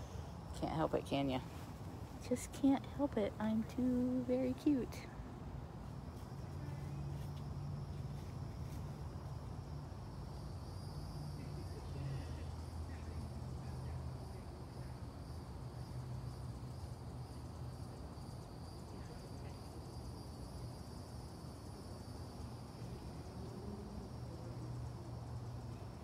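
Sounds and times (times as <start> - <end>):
high-pitched insect drone: 6.2 - 26.0.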